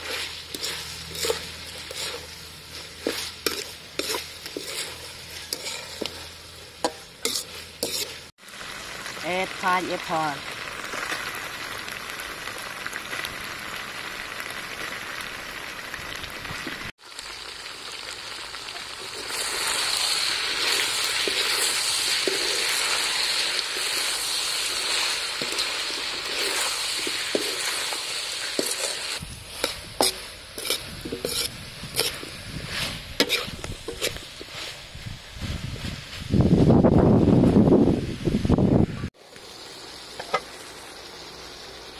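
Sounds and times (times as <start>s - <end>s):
metal spoon scraping a wok: 0.0s - 8.3s, 19.0s - 34.9s
food sizzling in a wok: 0.0s - 41.9s.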